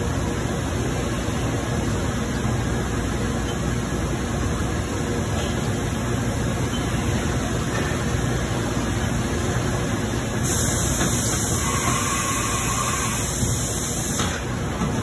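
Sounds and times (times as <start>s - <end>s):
bright coolant hiss: 10.4s - 14.4s.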